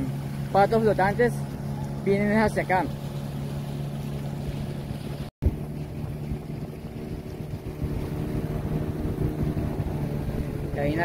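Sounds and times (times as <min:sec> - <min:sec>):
motorboat engine running: 0:00.0 - 0:11.0
wind on microphone: 0:04.0 - 0:11.0.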